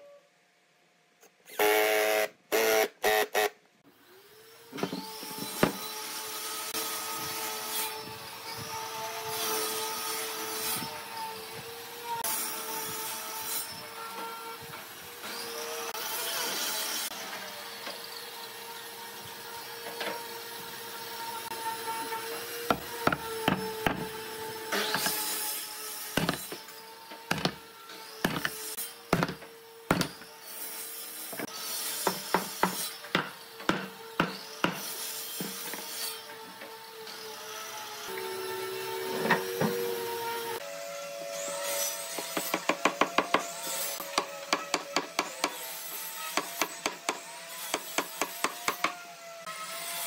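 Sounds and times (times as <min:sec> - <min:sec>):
sharp wooden knocks: 0:22.7 - 0:24.1, 0:26.2 - 0:26.5, 0:27.3 - 0:27.6, 0:28.2 - 0:30.2.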